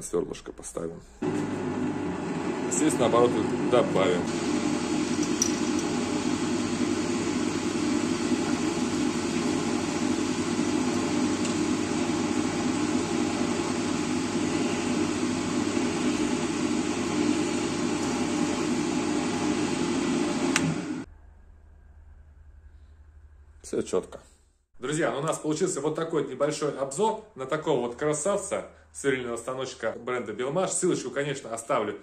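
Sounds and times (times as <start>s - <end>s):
drill press motor humming: 1.2s - 21.1s.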